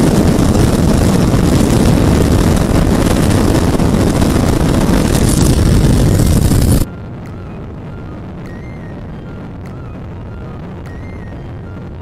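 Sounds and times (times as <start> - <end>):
motorcycle engine at full throttle: 0.0 - 6.9
wind rushing on microphone: 0.0 - 12.0.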